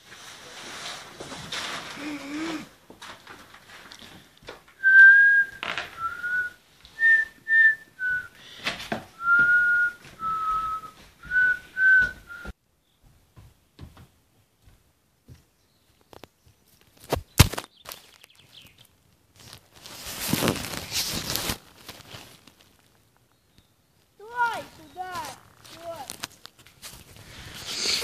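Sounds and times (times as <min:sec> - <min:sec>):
person whistling a slow tune: 0:04.8 - 0:08.4, 0:09.2 - 0:12.6.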